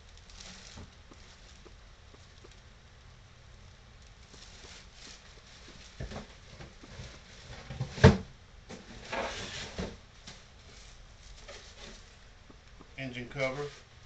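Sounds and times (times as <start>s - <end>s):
plastic bags crinkling: 0.0s - 2.6s, 4.2s - 8.0s.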